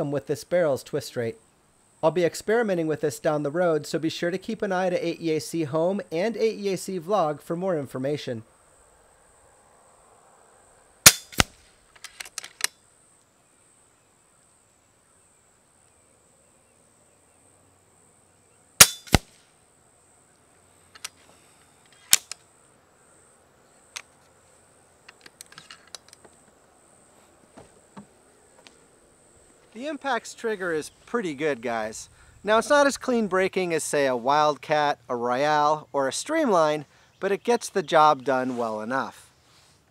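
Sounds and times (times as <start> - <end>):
air rifle shots: 11.0 - 11.7, 18.8 - 19.4.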